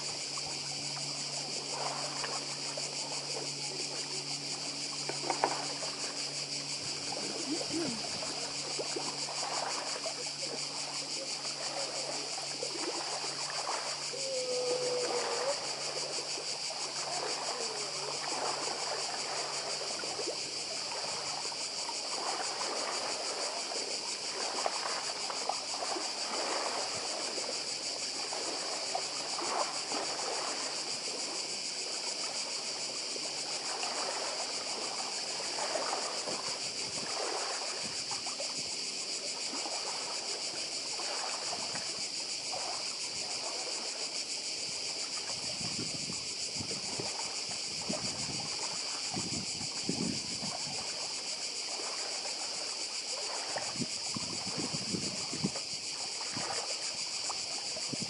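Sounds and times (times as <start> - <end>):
small waves lapping on stones: 0.0 - 14.2, 14.9 - 58.0
cicadas chorus: 0.0 - 58.0.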